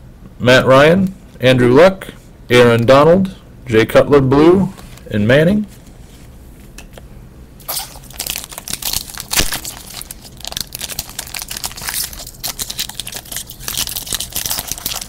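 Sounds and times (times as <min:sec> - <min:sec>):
foil wrapper crinkling and tearing: 0:07.6 - 0:15.0.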